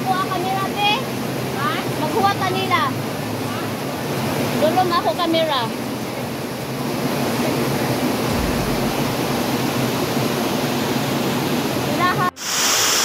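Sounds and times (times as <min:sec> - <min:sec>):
water rushing over rocks: 0:05.8 - 0:13.0.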